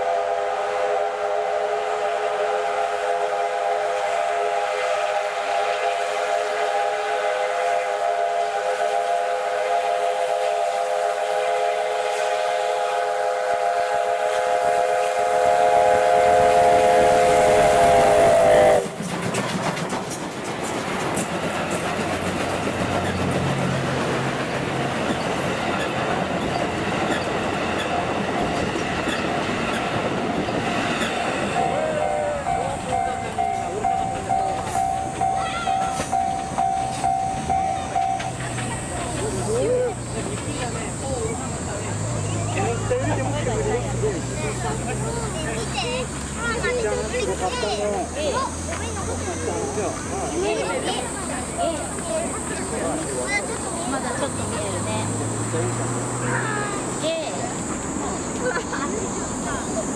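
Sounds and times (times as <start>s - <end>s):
steam whistle blast: 0.0s - 19.0s
train rushing past: 0.0s - 59.9s
locomotive engine running: 8.0s - 59.9s
wheels clattering on rails: 18.7s - 59.9s.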